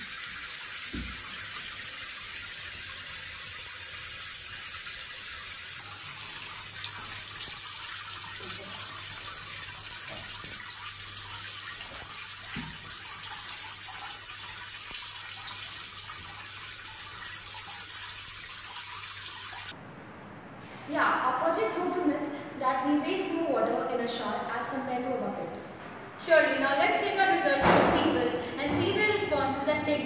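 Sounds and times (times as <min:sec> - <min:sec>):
shower water spraying: 0:00.0 - 0:19.7.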